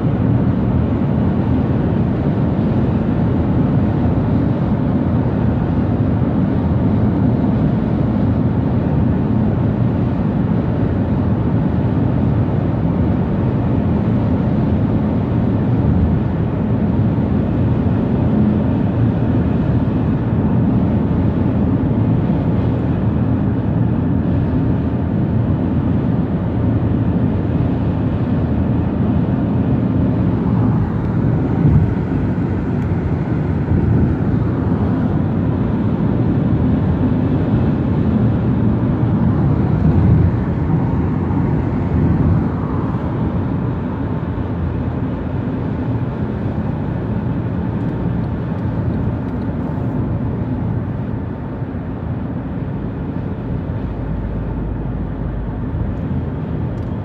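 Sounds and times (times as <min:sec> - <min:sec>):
car engine: 0:13.4 - 0:57.0
tyre and road noise: 0:27.6 - 0:57.0.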